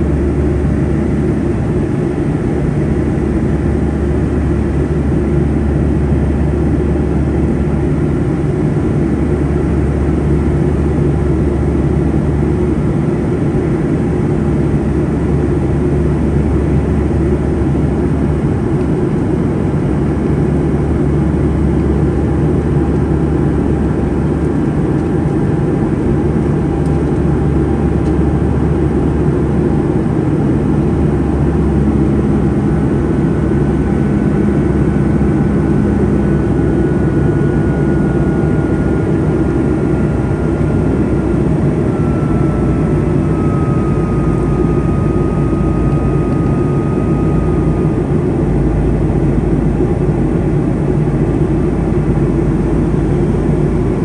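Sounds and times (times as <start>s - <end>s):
airplane engine drone: 0.0s - 54.0s
faint high whine: 20.0s - 54.0s.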